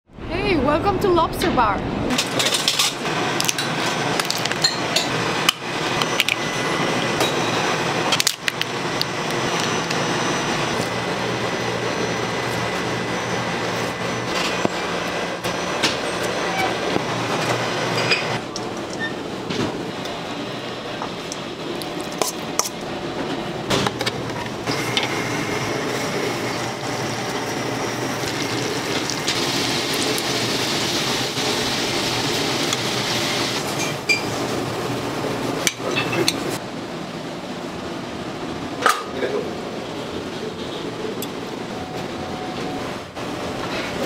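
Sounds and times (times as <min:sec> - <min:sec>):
butter sizzling in pan: 0:24.8 - 0:33.7.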